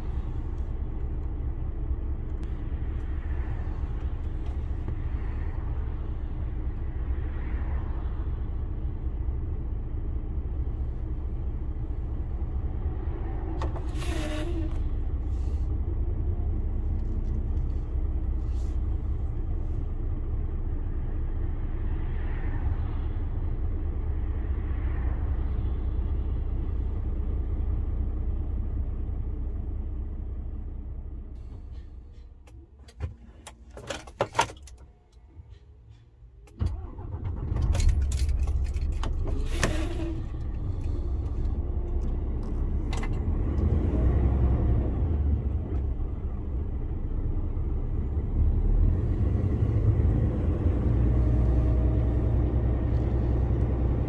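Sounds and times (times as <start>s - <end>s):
truck engine and road rumble: 0.0s - 54.0s
sharp clicks and rattles: 36.4s - 39.5s.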